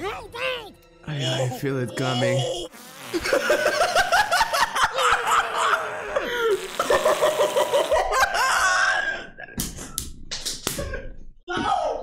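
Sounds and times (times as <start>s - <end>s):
man laughing hard: 3.2s - 9.6s.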